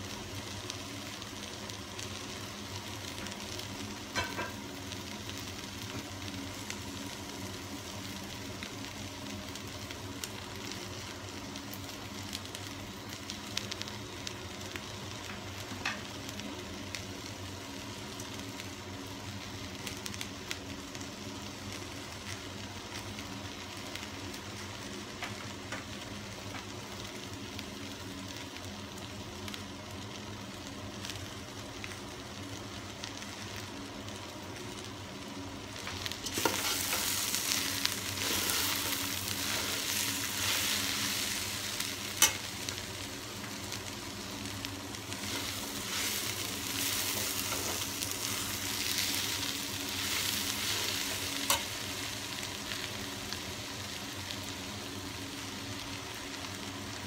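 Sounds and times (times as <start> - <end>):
food sizzling in a pot: 0.0 - 57.0.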